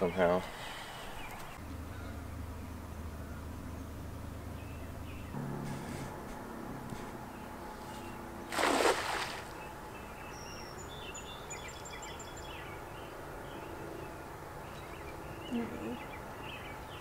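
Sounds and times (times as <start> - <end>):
net splashing into river: 8.5 - 9.7.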